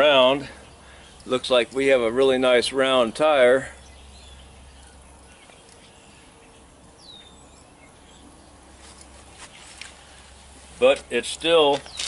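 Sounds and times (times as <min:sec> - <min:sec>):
faint bird chirp: 0:03.6 - 0:10.3.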